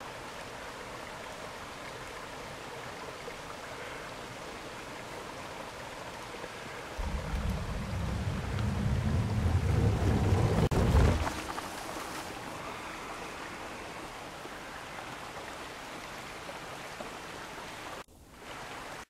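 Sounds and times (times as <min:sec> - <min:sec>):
creek rushing: 0:00.0 - 0:19.0
bike rolling over wooden planks: 0:07.0 - 0:12.2.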